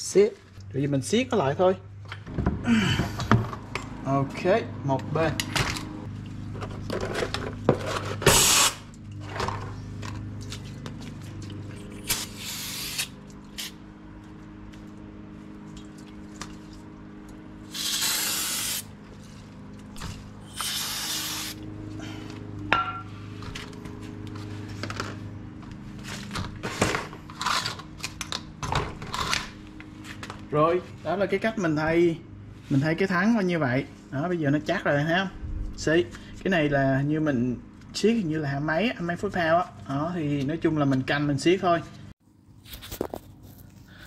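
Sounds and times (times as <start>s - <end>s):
aerosol spray hissing: 12.2s - 13.1s, 17.7s - 18.9s, 20.5s - 21.6s.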